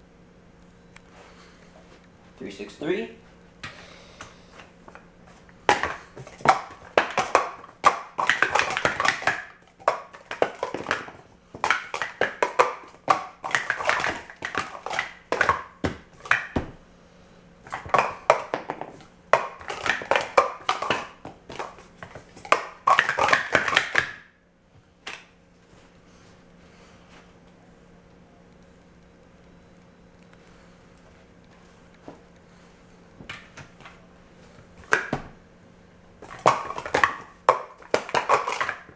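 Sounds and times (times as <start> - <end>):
plastic cups clattering: 5.3 - 16.7, 17.6 - 24.3, 34.8 - 35.2, 36.2 - 38.9.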